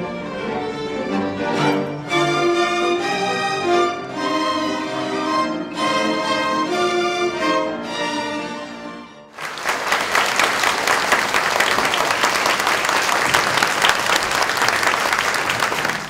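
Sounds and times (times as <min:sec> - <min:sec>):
string orchestra playing: 0:00.0 - 0:09.4
audience applause: 0:09.3 - 0:16.0.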